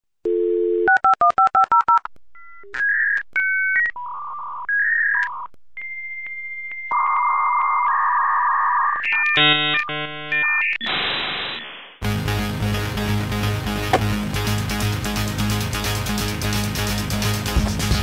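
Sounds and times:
dial tone: 0.2 - 1.9
touch-tone dialing beeps: 0.3 - 8.2, 8.8 - 10.8.

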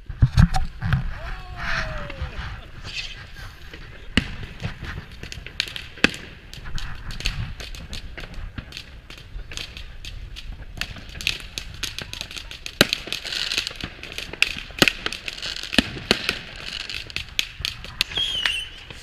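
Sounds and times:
fireworks bangs and crackles: 0.0 - 19.0
wavering high whistle: 18.2 - 18.8.

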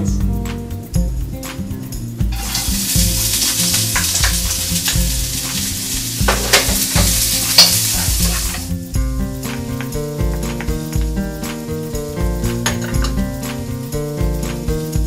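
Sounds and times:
shallots sizzling in a wok: 2.0 - 15.0
wooden spoon scraping wok: 2.3 - 8.8.

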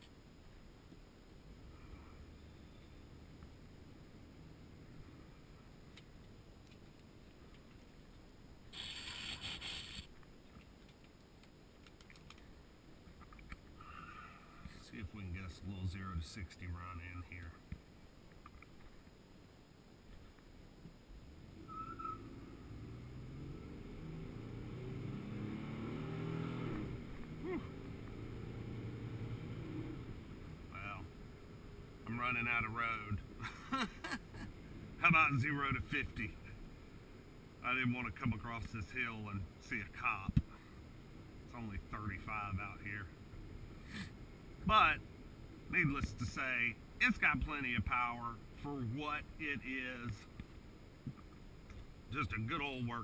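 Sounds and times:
engine accelerating hard: 22.2 - 30.3.

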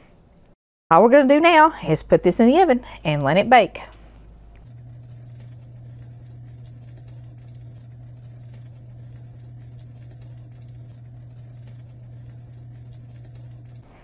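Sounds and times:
oven humming: 0.9 - 14.0
food crackling and bubbling: 4.0 - 14.0.

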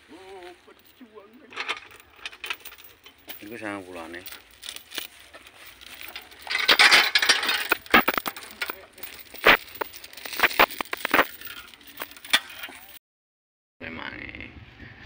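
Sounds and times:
wood crunching and cracking: 2.0 - 12.9.

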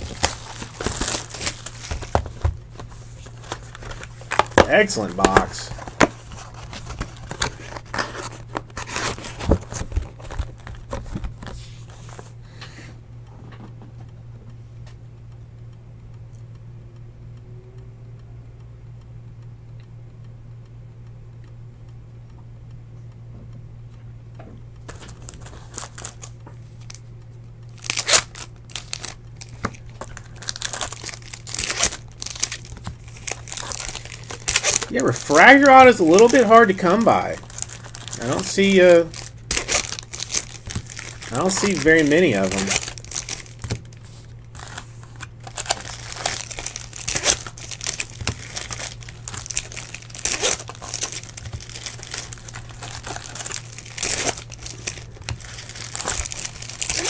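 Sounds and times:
foil wrappers crinkling: 0.0 - 12.4, 24.8 - 27.1, 27.7 - 57.0
low steady hum: 0.0 - 57.0.

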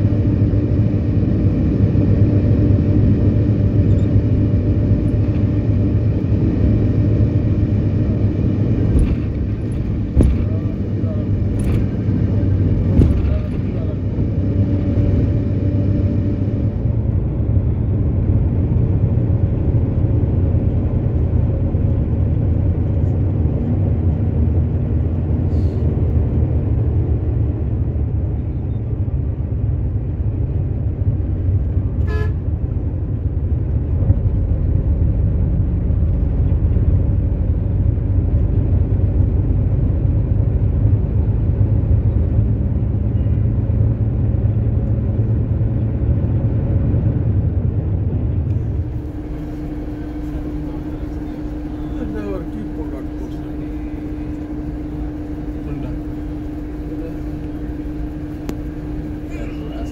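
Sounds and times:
bus engine and road noise: 0.0 - 59.9
bus horn toot: 32.0 - 32.6.

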